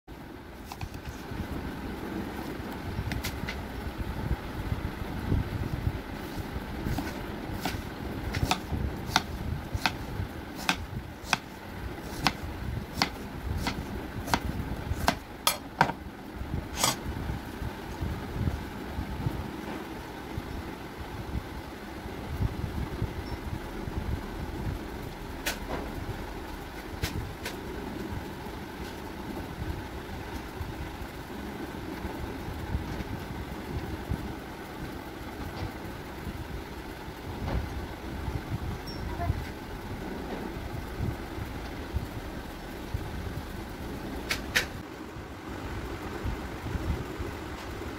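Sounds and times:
low rumbling background noise: 0.1 - 47.9
knife slicing watermelon: 6.9 - 16.0, 16.7 - 17.0
knife knocking on wooden board: 15.0 - 16.0.

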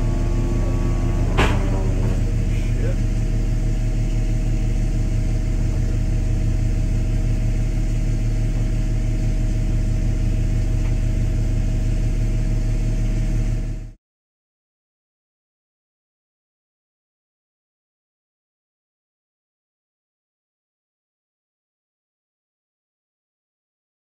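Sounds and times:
low machinery hum: 0.0 - 14.0.

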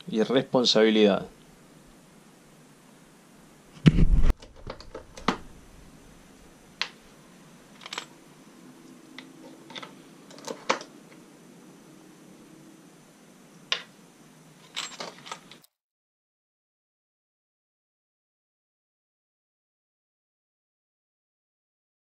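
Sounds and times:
thump: 3.8 - 4.3
sharp clicks and light knocks: 3.9 - 5.4.

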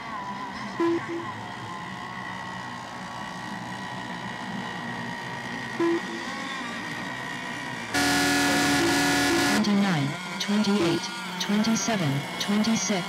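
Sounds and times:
model boat engines whining: 0.0 - 13.0.

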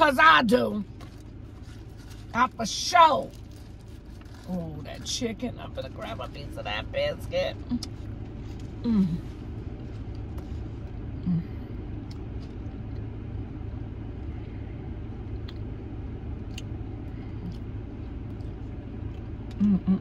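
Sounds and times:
car engine idling: 0.0 - 20.0
person humming mm: 8.8 - 9.3, 11.2 - 11.7, 19.6 - 20.0
chewing and lip-smacking: 12.0 - 13.2, 14.1 - 20.0.

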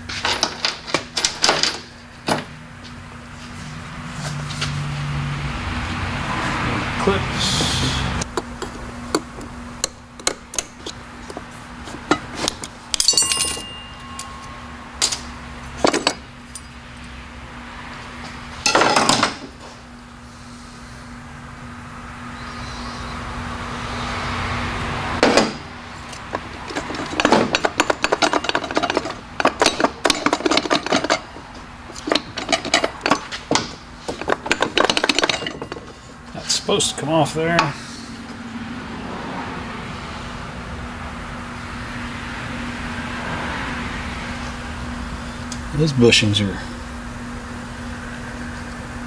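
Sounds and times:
faint hum: 6.3 - 18.5, 19.3 - 25.0
metal parts clinking: 12.6 - 15.2, 26.7 - 36.0.

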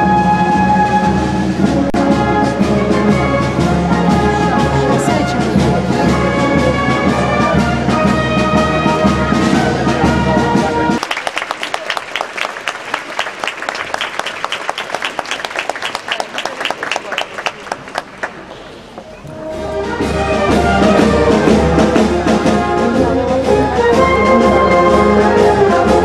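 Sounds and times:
brass band playing: 0.0 - 11.1, 19.3 - 26.0
crowd applauding: 11.0 - 19.0.

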